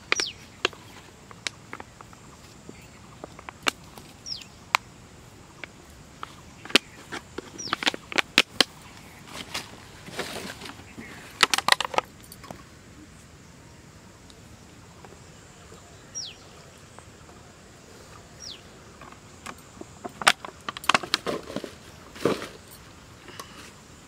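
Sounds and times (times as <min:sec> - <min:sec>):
falling bird chirp: 0:00.0 - 0:01.1, 0:01.7 - 0:04.9, 0:05.5 - 0:12.6, 0:15.5 - 0:19.0
plastic sack and bottle crackling: 0:05.6 - 0:12.1, 0:19.0 - 0:23.7
sack rustling: 0:06.8 - 0:11.7.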